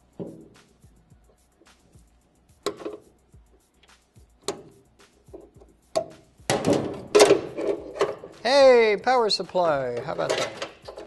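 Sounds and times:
screwdriver clinking on metal: 0:09.9 - 0:11.0.

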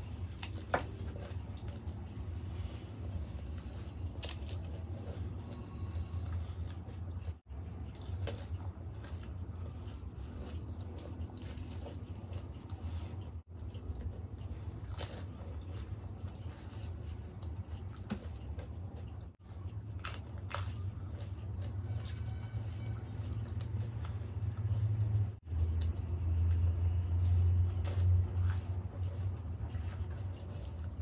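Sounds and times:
steady low hum: 0:00.0 - 0:31.0
wet squishy chewing: 0:00.0 - 0:31.0
crisp shells crunching in mouth: 0:19.0 - 0:22.3.

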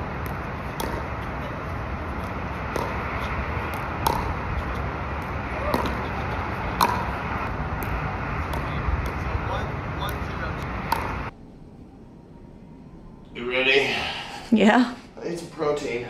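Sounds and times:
outdoor background noise: 0:00.0 - 0:16.0
paddle hitting plastic ball: 0:06.8 - 0:07.1.

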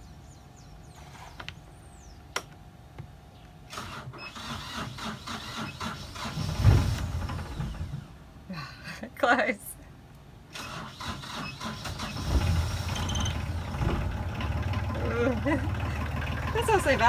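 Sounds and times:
diesel engine cranking: 0:03.7 - 0:08.2, 0:10.5 - 0:17.0.

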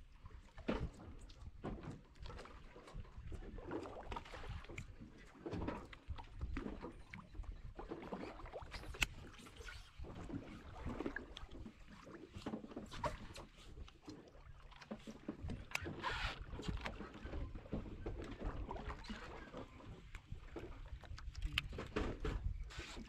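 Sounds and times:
water lapping against boat hull: 0:00.0 - 0:23.0
wind rumble on microphone: 0:19.9 - 0:23.0.

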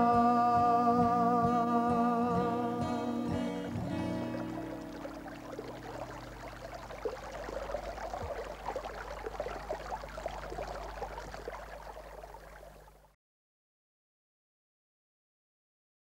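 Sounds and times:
stream trickling and splashing: 0:03.0 - 0:13.2.

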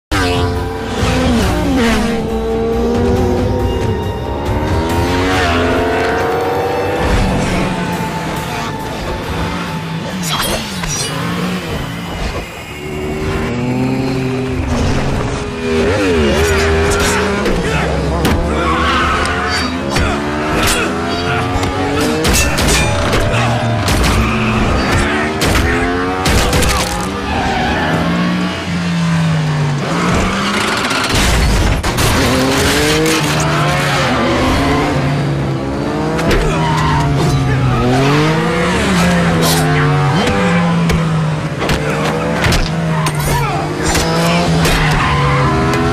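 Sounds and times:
motorcycle engines revving: 0:00.1 - 0:45.9
motorcycle crashing and scraping: 0:29.7 - 0:35.1.

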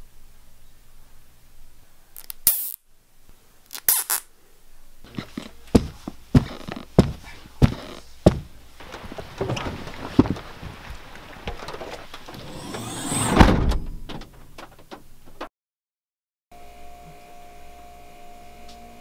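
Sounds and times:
irregular knocks: 0:05.8 - 0:10.8
heavy thuds: 0:05.8 - 0:14.8.

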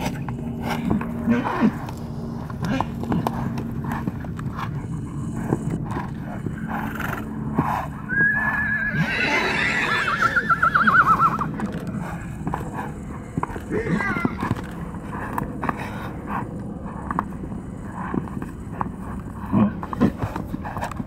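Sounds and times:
hooves thudding on stony dirt: 0:00.0 - 0:21.0
horse whinnying: 0:08.1 - 0:11.7, 0:13.7 - 0:14.5.

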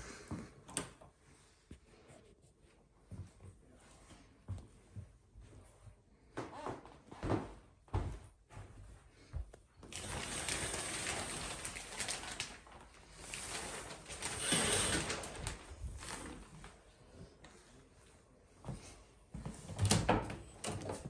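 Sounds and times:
shower curtain rustling and scraping: 0:09.9 - 0:16.8.

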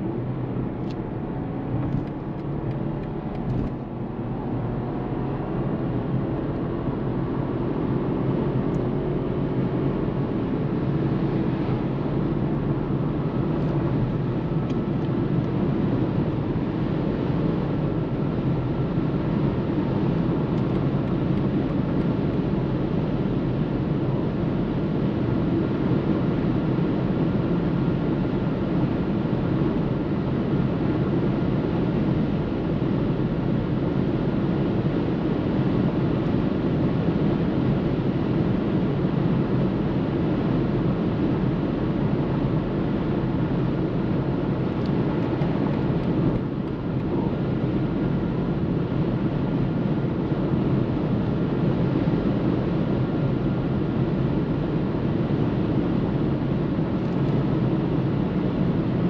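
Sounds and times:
road and wind noise in car: 0:00.0 - 0:59.0.

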